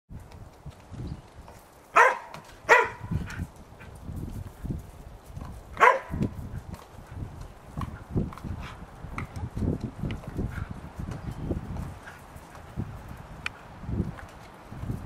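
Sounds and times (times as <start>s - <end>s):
dog barking: 2.0s - 3.1s, 5.8s - 6.2s.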